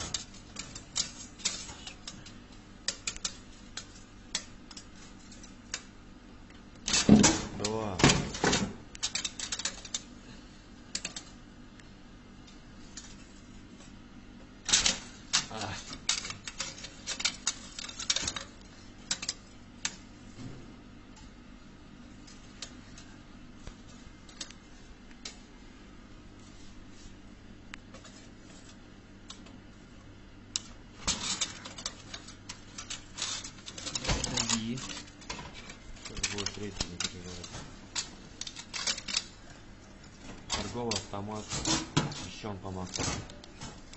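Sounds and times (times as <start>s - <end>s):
tape measure rattling against metal: 9.0s - 10.0s, 14.7s - 19.6s, 31.0s - 39.4s.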